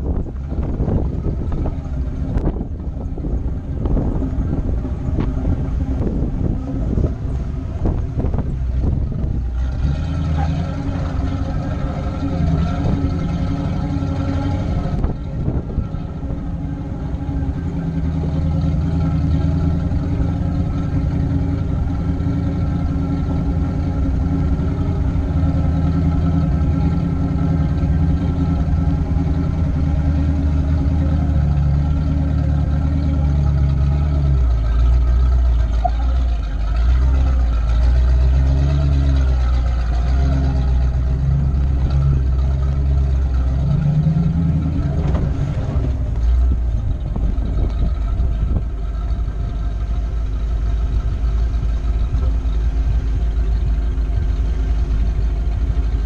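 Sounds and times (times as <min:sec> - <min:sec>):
car engine running: 0:00.0 - 0:56.0
tyre and drivetrain rumble: 0:00.0 - 0:56.0.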